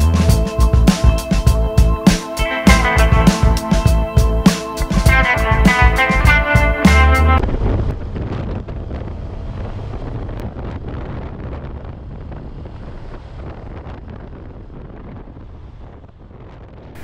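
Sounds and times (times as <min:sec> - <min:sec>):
wind buffeting microphone: 0:07.4 - 0:17.0.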